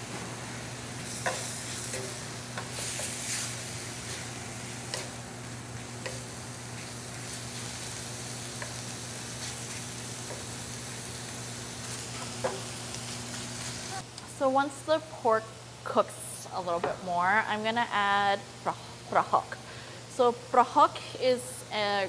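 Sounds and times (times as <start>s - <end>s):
meat sizzling in oil: 0.0s - 14.0s
wooden spoon scraping a pan: 1.0s - 5.2s.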